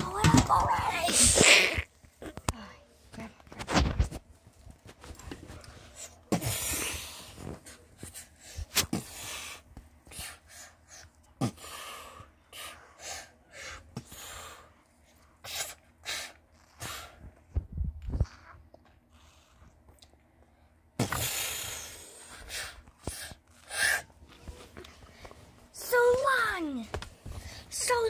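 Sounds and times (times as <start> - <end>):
person making mouth hisses: 1.2 - 1.9.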